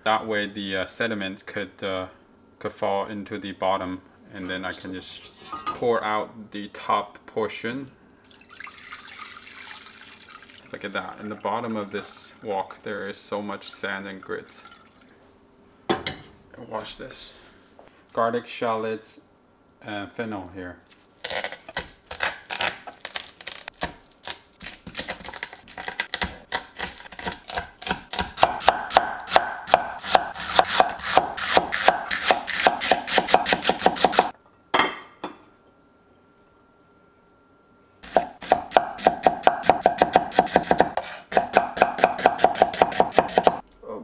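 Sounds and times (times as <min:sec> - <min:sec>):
cleaver chopping on wooden board: 0:26.2 - 0:34.3, 0:38.1 - 0:43.6.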